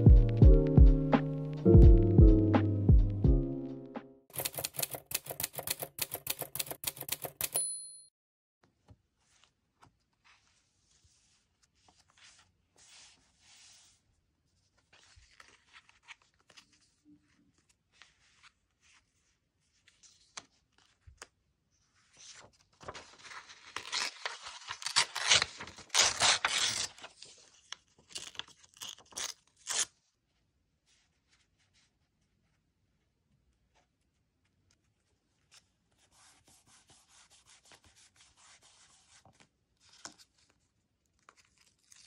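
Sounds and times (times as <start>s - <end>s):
paper rustling: 9.2s - 29.9s, 34.8s - 42.0s
paper tearing and crackling: 22.8s - 29.9s, 41.2s - 42.0s.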